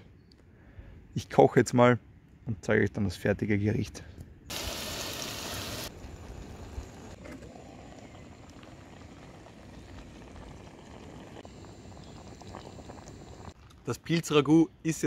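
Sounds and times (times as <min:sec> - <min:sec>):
onions and mushrooms sizzling in a pan: 0:04.5 - 0:07.2.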